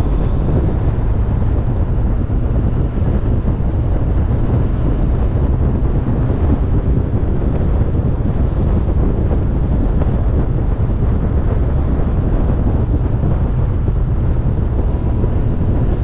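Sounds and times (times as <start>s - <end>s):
motorcycle engine running: 0.0s - 16.0s
wind buffeting microphone: 0.0s - 16.0s.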